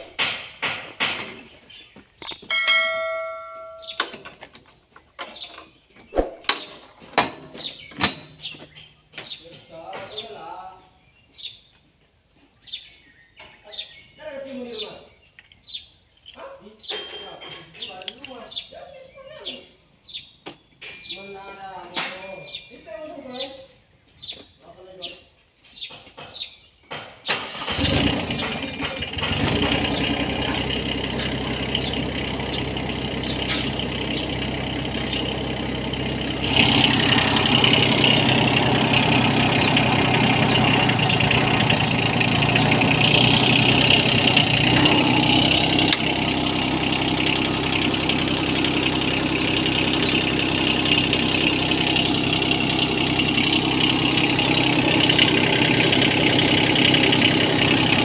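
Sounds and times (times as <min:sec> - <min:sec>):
diesel engine starting and idling: 0:00.0 - 0:00.3, 0:27.2 - 0:58.0.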